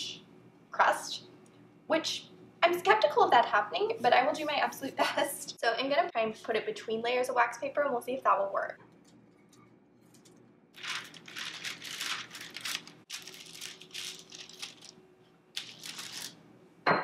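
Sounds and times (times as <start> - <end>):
wax paper rustling and crinkling: 10.8 - 15.0, 15.6 - 16.4.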